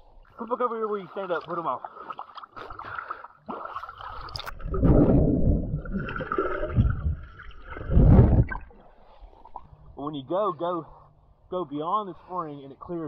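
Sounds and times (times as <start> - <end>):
water sloshing and gurgling: 0.0 - 10.0
muffled deep underwater surges: 4.2 - 10.0.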